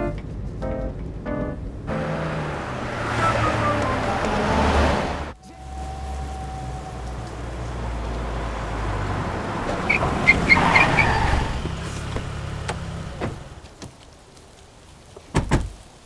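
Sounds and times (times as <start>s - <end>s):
car engines running low: 1.6s - 16.0s
car doors thudding shut: 12.2s - 13.5s, 15.3s - 15.8s.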